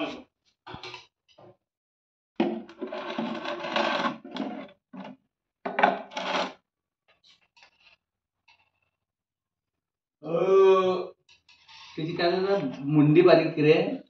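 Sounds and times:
plastic jar scraping on concrete: 2.5 - 6.6.

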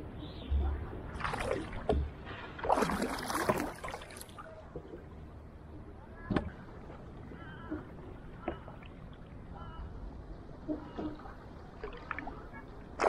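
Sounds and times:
paddle splashing through water: 1.2 - 5.0.

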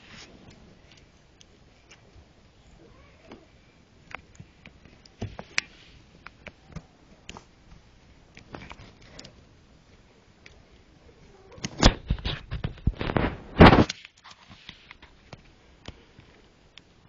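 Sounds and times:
rustling: 0.0 - 16.6.

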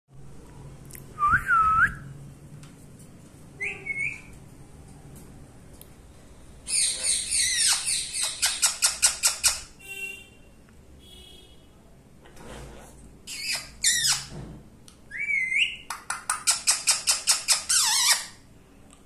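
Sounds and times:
parakeet calling: 6.7 - 9.7, 13.3 - 14.3, 15.1 - 18.4.

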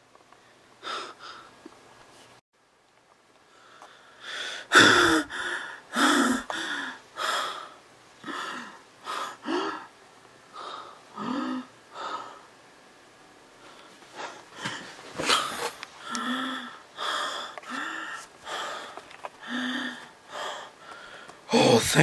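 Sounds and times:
man panting and gasping: 3.7 - 9.9, 14.1 - 22.0.

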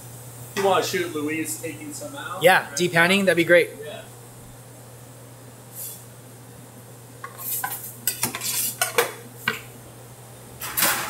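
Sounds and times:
steady low hum: 0.0 - 11.0
metal pans clanking and scraping: 7.3 - 9.2, 10.6 - 11.0.

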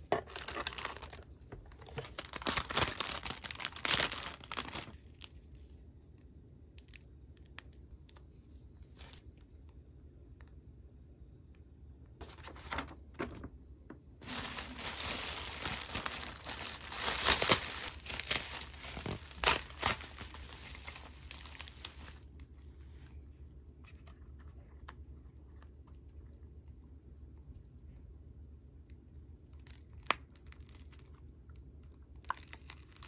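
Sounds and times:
bubble wrap crinkling: 0.0 - 5.4, 14.2 - 23.2, 29.5 - 31.2, 32.0 - 33.0.

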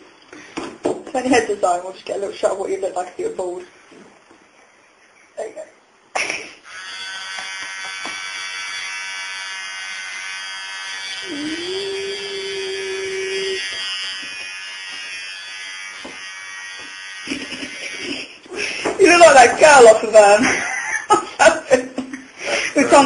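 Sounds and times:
electric hair clippers buzzing: 6.4 - 18.4.

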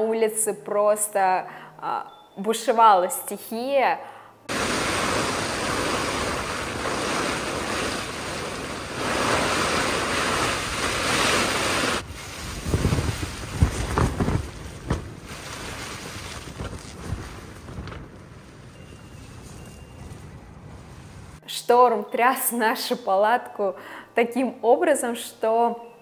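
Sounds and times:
tent fabric thuds: 4.5 - 18.2
wind and rain on a tent: 4.5 - 21.4.

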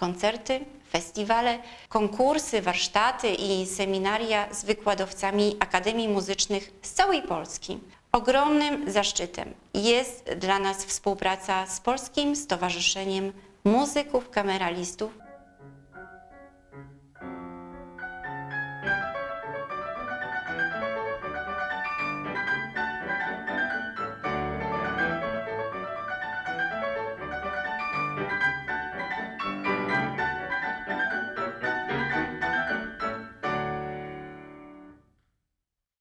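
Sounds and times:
grand piano chords and runs: 15.2 - 35.0.

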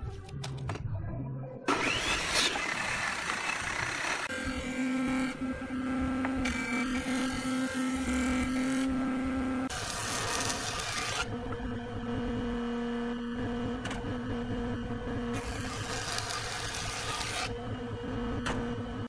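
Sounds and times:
thickness planer cutting boards: 1.7 - 11.3, 15.4 - 17.6
planing machine humming: 1.7 - 19.0.

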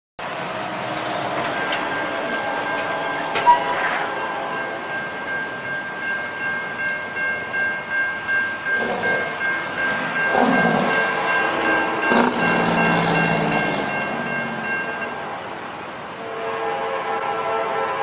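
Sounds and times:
railroad crossing bell ringing: 0.2 - 18.0
train horn: 2.3 - 4.9, 10.3 - 14.0, 16.2 - 18.0.

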